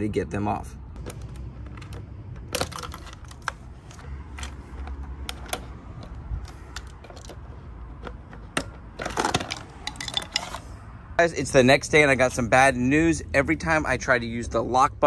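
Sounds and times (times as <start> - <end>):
clicks of plastic connectors: 1.0 - 10.6.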